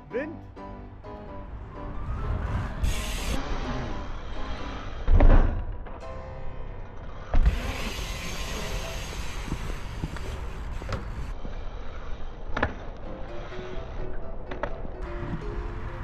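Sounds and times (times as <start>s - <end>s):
wind on microphone: 1.9s - 3.4s
bicycle tyres rolling on stone paving: 7.4s - 12.9s.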